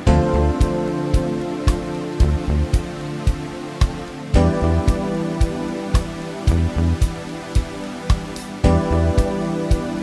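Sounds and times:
sustained chords: 0.0s - 10.0s.

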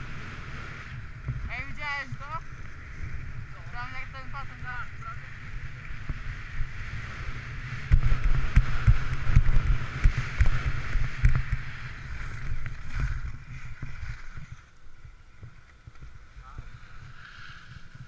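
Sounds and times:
skis scraping over snow: 0.0s - 18.0s
wind on microphone: 0.0s - 18.0s.

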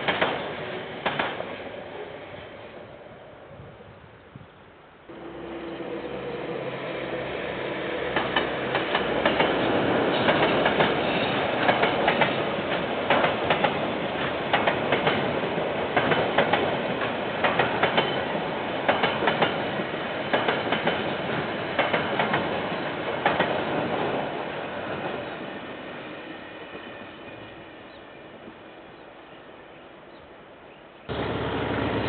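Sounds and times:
train wheels clicking over rail joints: 0.0s - 1.5s, 8.0s - 24.2s
freight train rumbling past: 0.0s - 3.5s, 5.1s - 29.3s, 31.1s - 32.0s.

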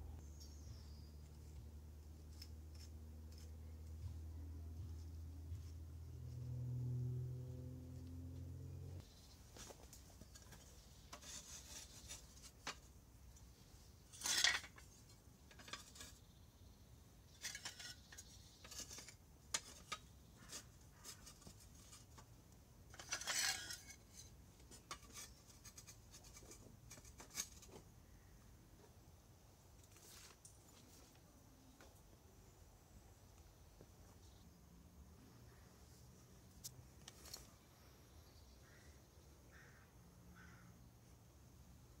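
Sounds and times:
clay roof tiles clinking: 10.0s - 13.4s, 14.0s - 16.3s, 17.3s - 27.9s.

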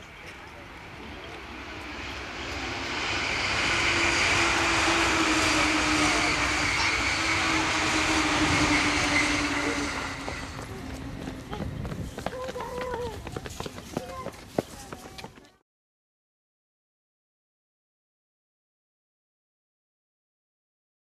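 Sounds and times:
electric train passing: 0.0s - 14.2s.

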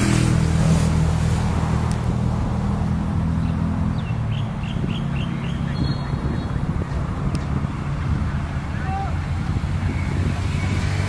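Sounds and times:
low engine hum: 0.0s - 11.0s
bird chirping: 3.3s - 7.0s.

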